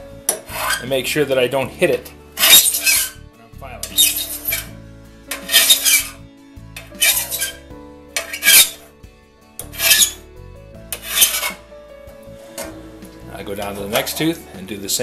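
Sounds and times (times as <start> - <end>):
hand file rasping on metal: 0.3 - 0.9, 2.4 - 3.2, 3.8 - 6.2, 6.8 - 7.6, 8.2 - 8.9, 9.6 - 10.2, 10.9 - 11.6.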